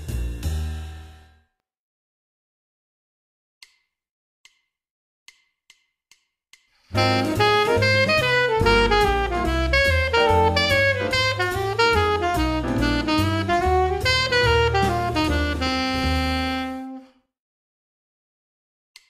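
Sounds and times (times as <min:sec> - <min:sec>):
jazz bass and drums: 0:00.0 - 0:01.0, 0:06.9 - 0:17.0
alto saxophone playing: 0:06.9 - 0:17.2.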